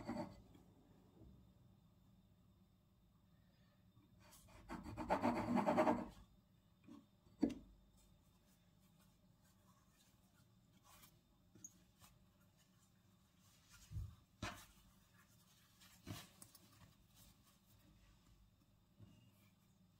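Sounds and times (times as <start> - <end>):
scraping in a kitchen: 0.0 - 0.4.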